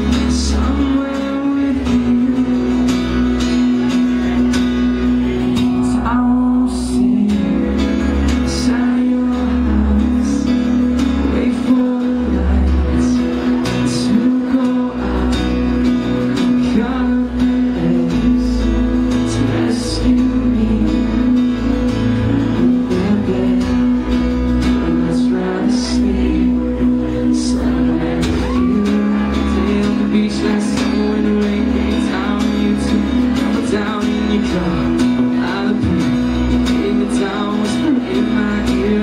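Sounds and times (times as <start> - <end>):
acoustic guitar strumming: 0.0 - 39.0
deep bass: 0.0 - 39.0
man singing: 0.0 - 39.0.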